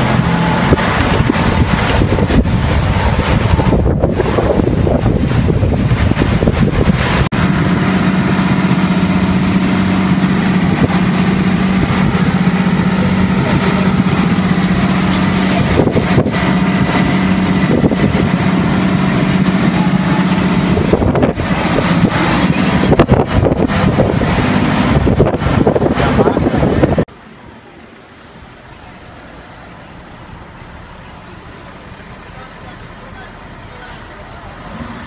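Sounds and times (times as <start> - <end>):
wind buffeting microphone: 0.0 - 27.1
truck engine idling: 0.0 - 35.0.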